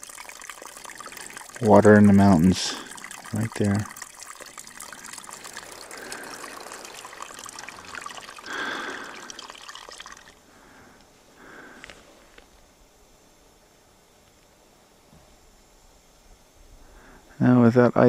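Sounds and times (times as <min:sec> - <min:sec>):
spring water trickling: 0:00.0 - 0:10.8.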